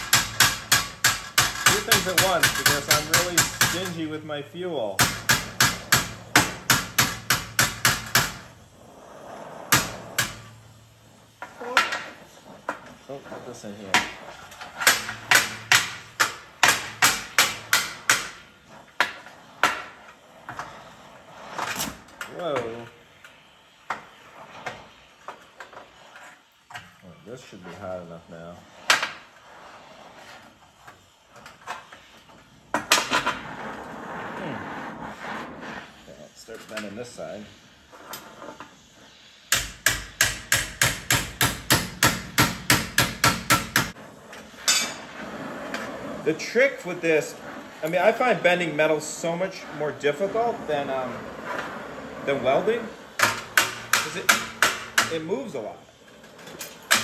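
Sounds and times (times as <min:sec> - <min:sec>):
hammer striking steel bar: 0:00.0 - 0:04.0, 0:05.0 - 0:08.5, 0:14.8 - 0:18.4, 0:39.5 - 0:44.0, 0:53.2 - 0:55.2.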